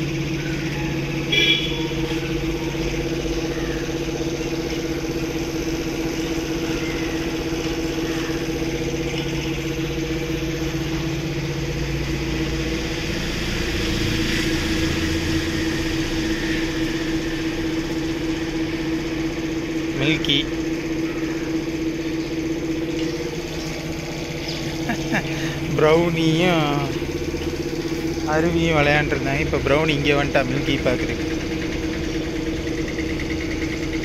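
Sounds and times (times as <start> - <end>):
motor humming: 0.0 - 34.0.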